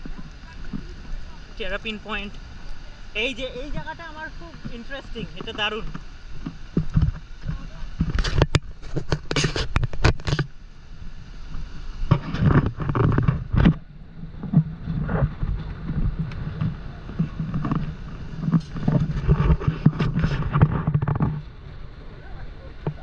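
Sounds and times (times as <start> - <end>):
waterfall roaring: 0.0 - 8.7
wind buffeting microphone: 0.0 - 23.0.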